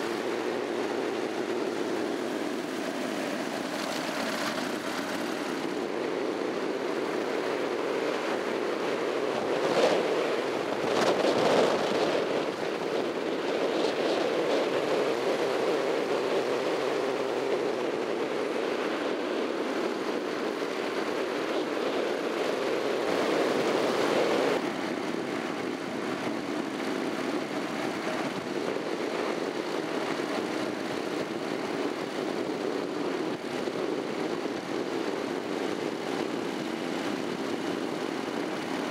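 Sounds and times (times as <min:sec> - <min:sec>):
road noise: 0:00.0 - 0:23.5
wind noise: 0:00.0 - 0:38.9.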